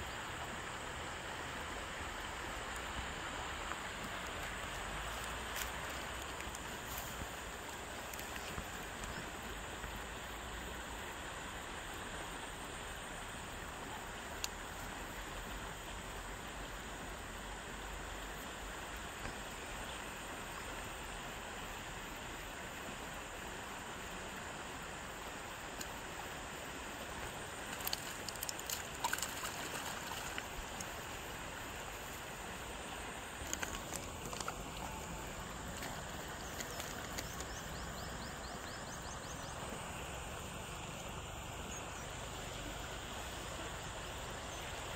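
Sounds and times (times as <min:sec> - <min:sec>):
outdoor background hiss: 0:00.0 - 0:44.9
rustles: 0:02.4 - 0:09.6, 0:26.7 - 0:44.6.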